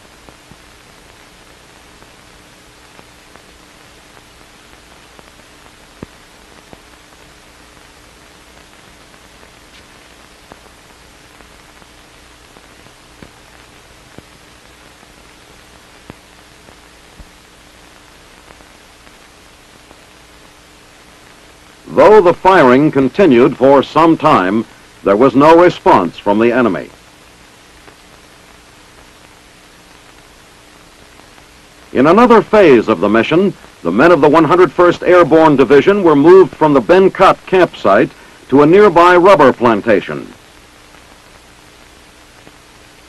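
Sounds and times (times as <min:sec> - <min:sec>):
faint steady hum: 0:00.0 - 0:43.0
film soundtrack hiss: 0:00.0 - 0:43.0
small clicks and pops: 0:00.2 - 0:02.2, 0:02.8 - 0:21.6, 0:27.6 - 0:31.9, 0:40.3 - 0:43.0.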